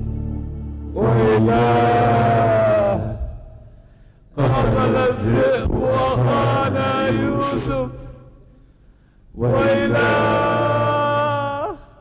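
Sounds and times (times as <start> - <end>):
chanted singing in long notes: 0.0 - 3.2.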